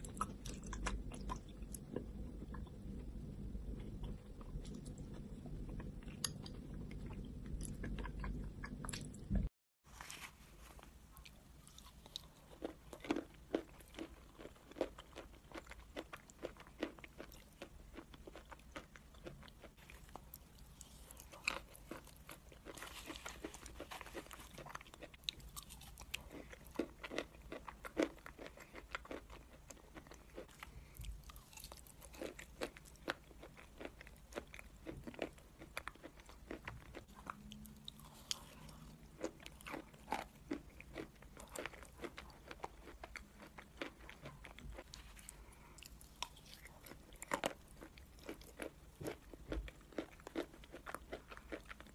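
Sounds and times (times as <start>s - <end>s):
person chewing crunchy clay: 0.0s - 9.5s, 10.1s - 51.9s.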